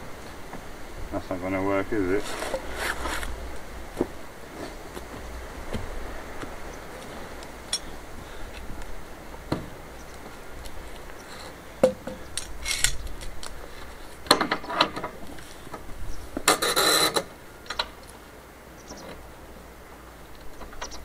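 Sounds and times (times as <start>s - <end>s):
metal hand tools clinking and scraping: 7.7s - 8.0s, 12.4s - 13.3s.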